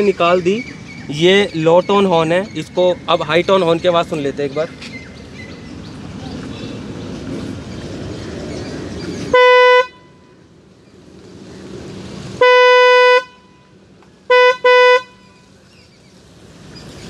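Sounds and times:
electric car horn blasts: 9.3s - 10.3s, 12.4s - 15.4s.

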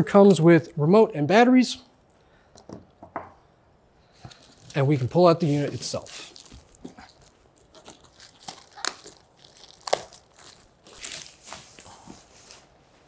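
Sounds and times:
plastic wrapping crinkling: 4.2s - 12.7s.

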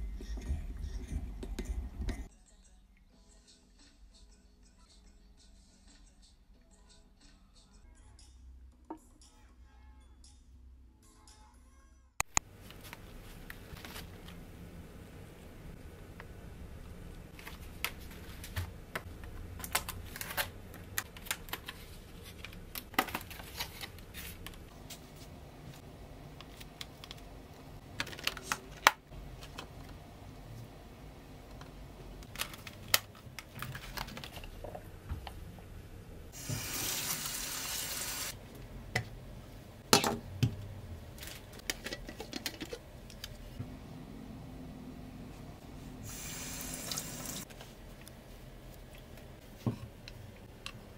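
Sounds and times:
plastic containers clicking and crackling: 27.9s - 30.0s, 32.2s - 34.8s.

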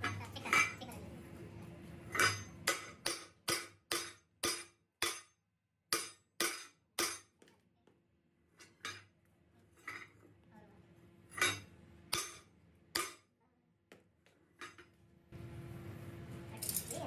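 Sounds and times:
hammer striking metal: 2.1s - 7.4s, 11.4s - 13.3s.

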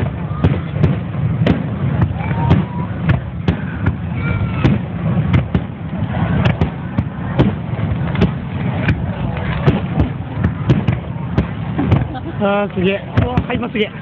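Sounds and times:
firework shells bursting: 0.0s - 14.0s
low rumble of booms: 0.0s - 14.0s.

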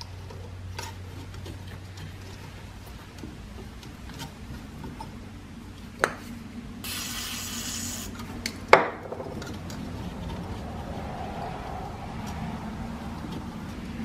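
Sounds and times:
aerosol spray can hissing: 6.8s - 8.2s.

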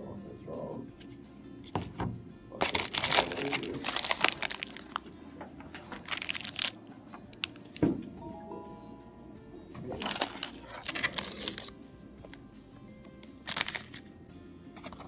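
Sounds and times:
plastic wrappers crinkling: 2.6s - 7.8s, 9.9s - 12.4s, 13.2s - 14.1s.

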